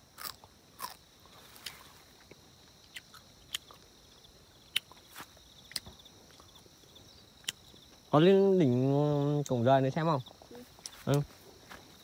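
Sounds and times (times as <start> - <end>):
high insect drone: 0.0 - 12.0
footsteps crunching on dry brush: 5.0 - 5.4, 10.9 - 12.0.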